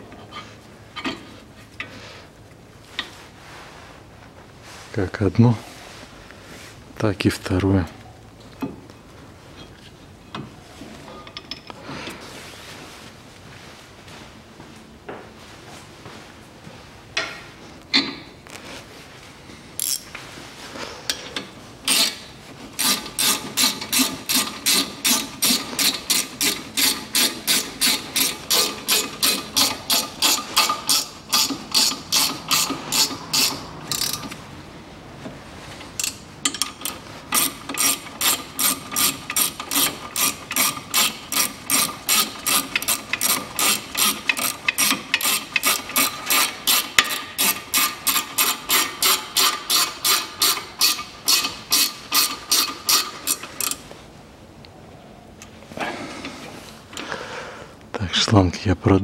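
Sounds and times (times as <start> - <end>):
ratchet wrench clicking: 19.8 - 20.1, 21.9 - 22.2, 22.8 - 34.4, 36.0 - 53.8.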